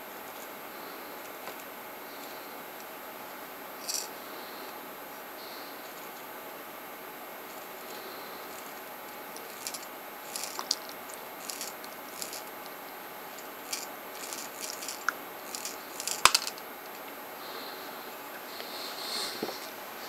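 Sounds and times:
steel balls clicking and rattling: 0:03.8 - 0:04.1, 0:09.4 - 0:12.5, 0:13.3 - 0:16.6.

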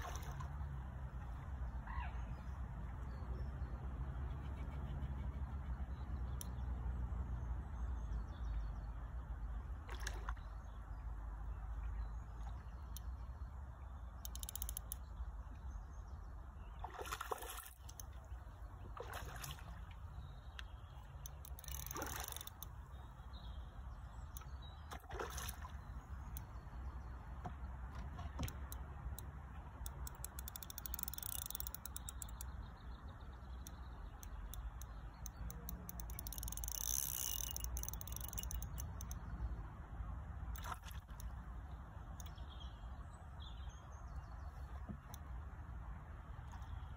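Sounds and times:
water splashes and sloshes: 0:00.0 - 0:46.9.

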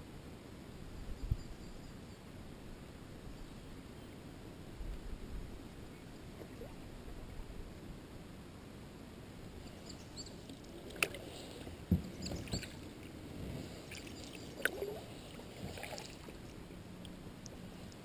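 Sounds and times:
paddle strokes: 0:09.6 - 0:18.0
water lapping: 0:09.6 - 0:18.0
paddle knocking against boat: 0:11.8 - 0:12.7.

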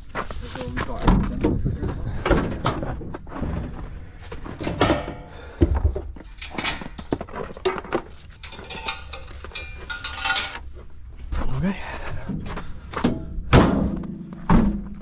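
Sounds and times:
equipment cases knocking and clattering: 0:00.9 - 0:10.7, 0:12.2 - 0:15.0.

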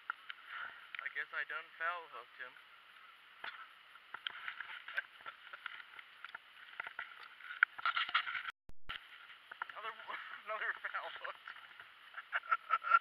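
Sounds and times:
light clicks and knocks in kayak: 0:03.4 - 0:09.8.

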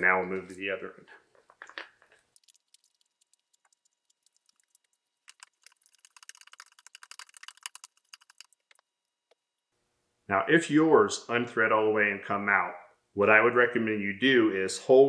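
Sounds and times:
threads clicking and rattling: 0:01.4 - 0:09.5.

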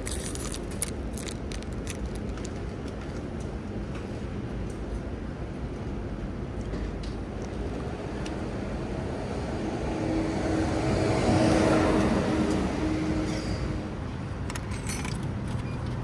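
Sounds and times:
car passing by: 0:08.5 - 0:13.9.

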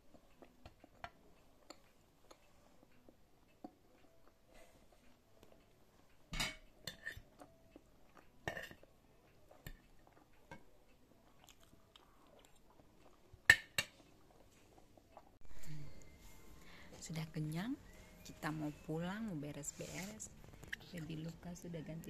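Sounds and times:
quiet chewing: 0:00.0 - 0:17.2, 0:19.5 - 0:22.0
cutlery clicking on a plate: 0:06.4 - 0:07.3.

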